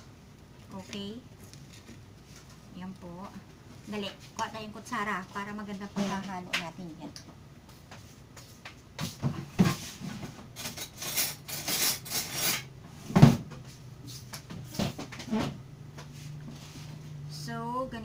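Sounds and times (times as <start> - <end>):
rattling utensils: 10.6 - 12.7.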